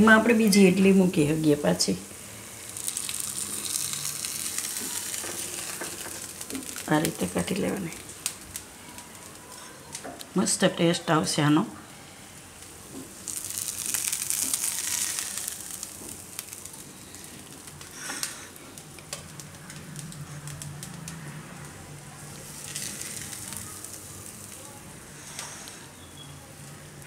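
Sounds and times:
batter sizzling in oil: 0.0s - 27.0s.

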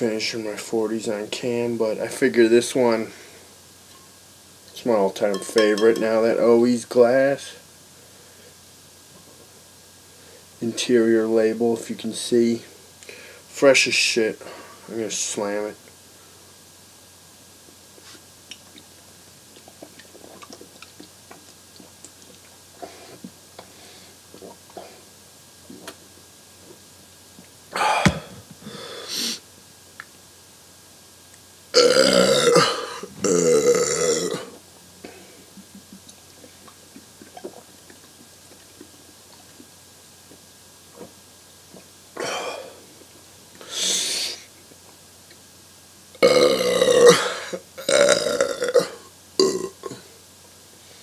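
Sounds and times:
breathy exhale: 27.8s - 29.4s
loud gasping breath: 27.8s - 29.4s
man belching: 31.8s - 34.6s, 46.2s - 50.0s.

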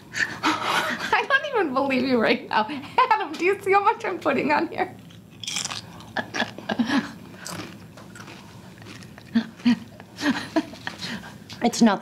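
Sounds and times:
tortilla chip crunching: 5.0s - 6.6s, 7.4s - 9.8s.

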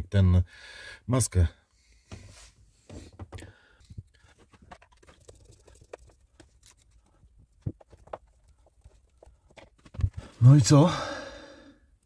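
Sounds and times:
handling rustle: 2.2s - 10.5s.

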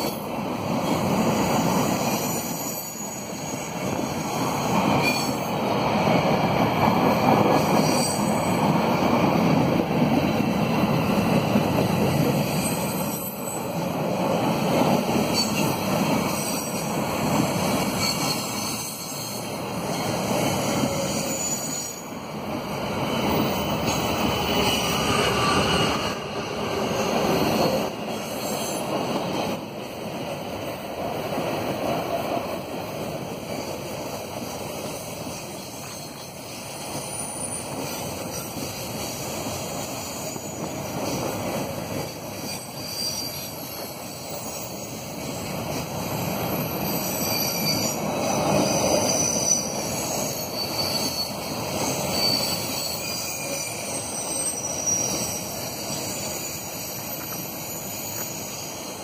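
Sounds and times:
train wheels rumbling on rails: 0.0s - 59.0s
wheels squealing: 15.2s - 29.0s, 35.2s - 59.0s.

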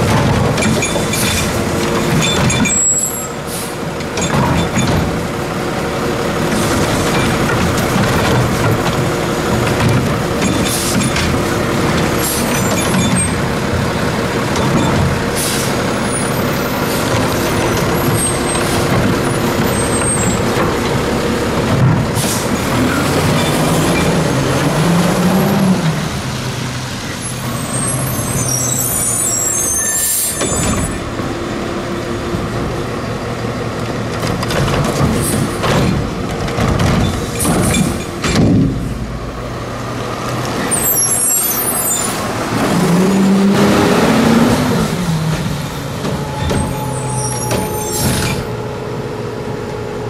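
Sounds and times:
diesel engine running: 0.0s - 29.7s, 30.4s - 50.0s.

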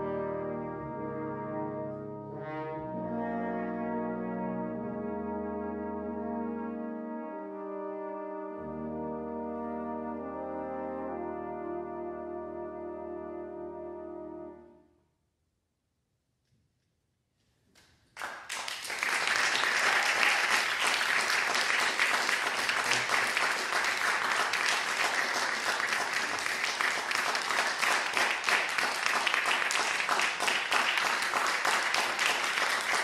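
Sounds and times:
audience applauding: 18.2s - 33.0s.

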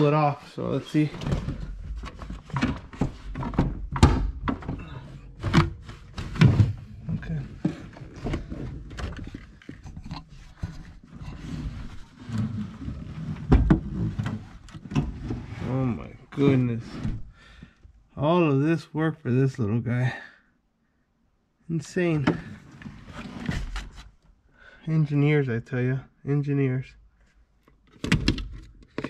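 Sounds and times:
knocking scraping and rattling: 0.8s - 17.3s.

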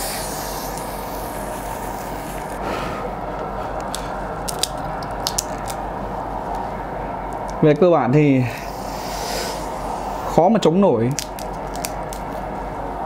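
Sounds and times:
cracks of chewing shrimp: 3.8s - 5.8s, 11.1s - 12.4s.

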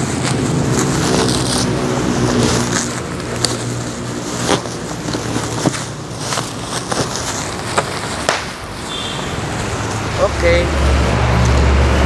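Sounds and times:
bubble wrap rustling and crinkling: 0.0s - 12.0s.

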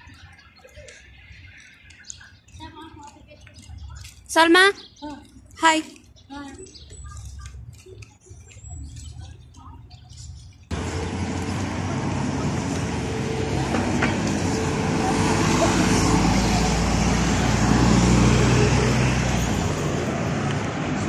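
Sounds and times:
road traffic: 0.0s - 21.0s
bus passing close: 10.7s - 21.0s.

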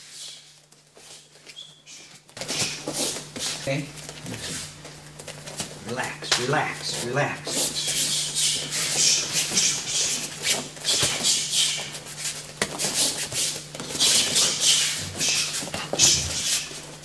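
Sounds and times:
steady low hum: 0.0s - 17.0s
feet scuffing on mats: 6.9s - 17.0s
hissing punches: 8.3s - 12.0s.

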